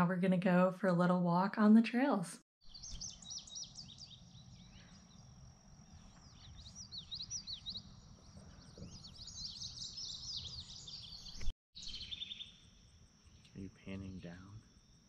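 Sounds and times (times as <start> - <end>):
songbirds chirping and singing: 2.7 - 12.6
high insect drone: 11.9 - 15.0.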